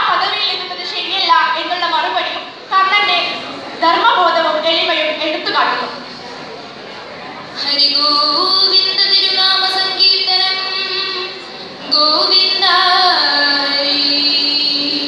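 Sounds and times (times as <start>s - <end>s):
girls singing: 7.5s - 15.0s.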